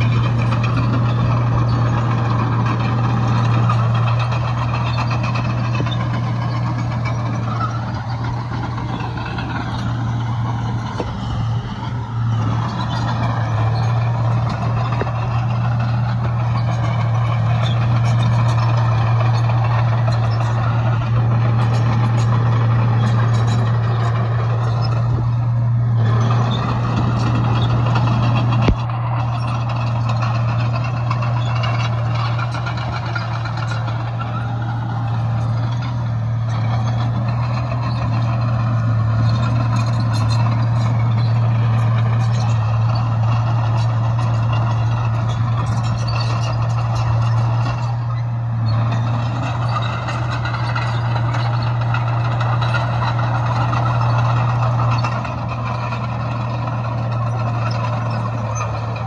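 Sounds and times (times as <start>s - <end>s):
diesel engine droning: 0.0s - 59.0s.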